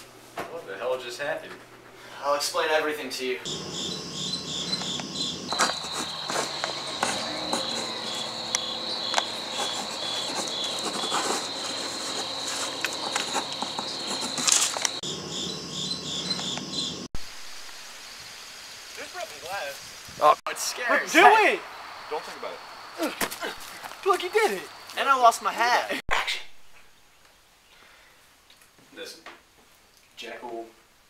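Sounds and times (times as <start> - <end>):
crickets chirping: 3.4 - 26.0
high insect trill: 3.5 - 25.8.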